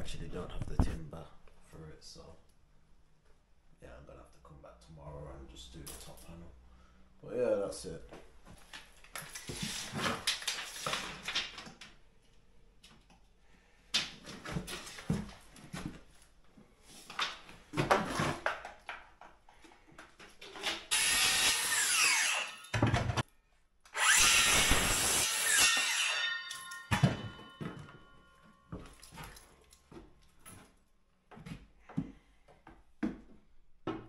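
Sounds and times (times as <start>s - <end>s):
saw blade whining down: 20.9s - 22.7s, 23.9s - 27.5s
circular saw cutting wood: 20.9s - 22.8s, 23.9s - 27.3s.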